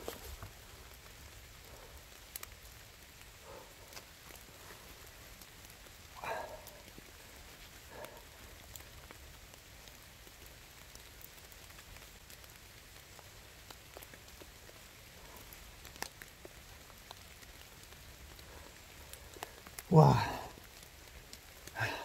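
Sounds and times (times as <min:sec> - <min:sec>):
faint rain patter: 0:00.0 - 0:22.0
light ticks: 0:02.2 - 0:02.6, 0:09.8 - 0:19.9.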